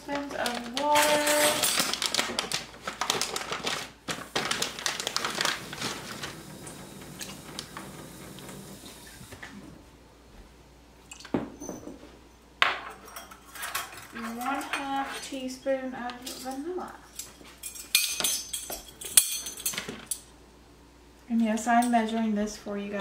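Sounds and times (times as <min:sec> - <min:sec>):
kitchen utensils clinking: 0:00.1 - 0:02.5, 0:12.6 - 0:20.3.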